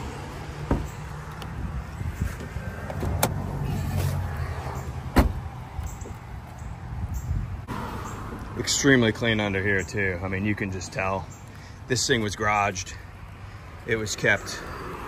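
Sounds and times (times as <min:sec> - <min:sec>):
car door closing thud: 0:00.6 - 0:01.0, 0:05.1 - 0:05.4.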